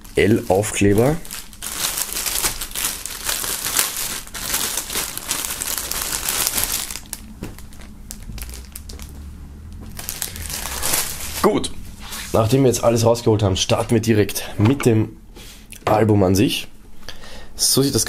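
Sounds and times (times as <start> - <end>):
plastic bag crinkling: 0.0 - 13.0.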